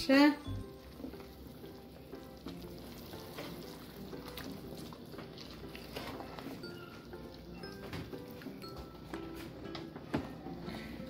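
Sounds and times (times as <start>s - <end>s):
broth simmering and bubbling: 0.4s - 9.0s.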